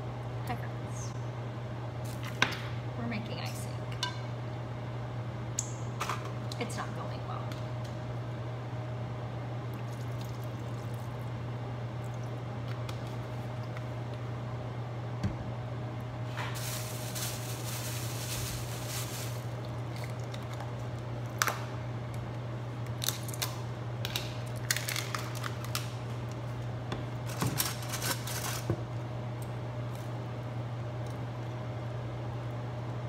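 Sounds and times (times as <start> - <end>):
steady low hum: 0.0 - 33.0
plastic packaging handled: 16.3 - 20.6, 27.2 - 28.7.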